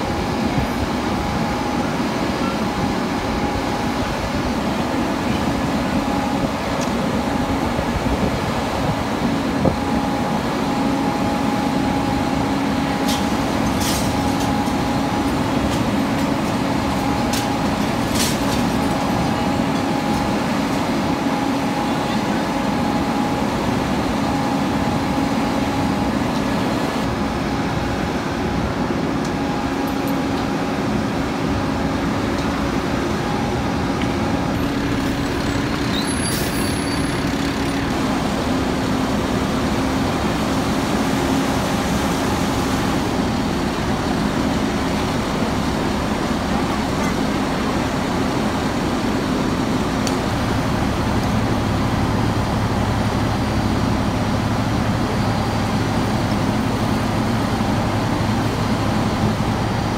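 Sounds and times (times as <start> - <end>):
diesel engine droning: 0.0 - 59.9.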